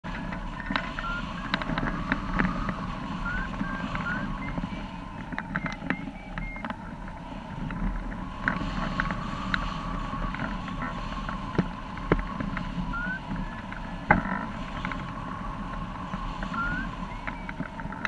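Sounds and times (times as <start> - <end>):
strong gusty wind: 0.0 - 18.0
short electronic beeps: 0.5 - 6.7, 12.9 - 14.0, 16.5 - 17.6.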